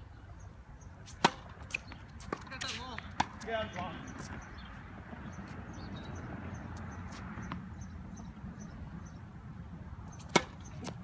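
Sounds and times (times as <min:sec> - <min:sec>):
racket hitting tennis ball: 0:01.0 - 0:04.3, 0:10.2 - 0:11.0.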